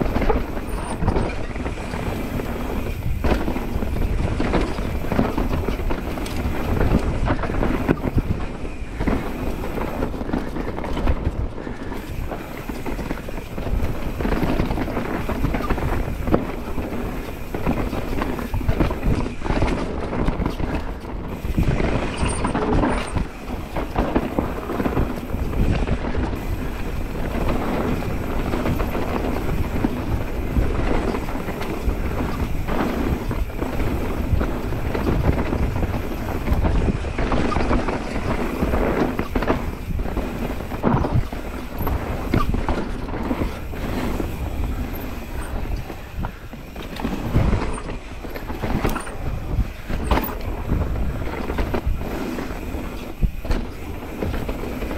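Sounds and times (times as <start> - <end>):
bike knocking and rattling: 0.0 - 54.9
bike tyre rumble on dirt: 0.0 - 54.9
wind on microphone: 0.0 - 54.9.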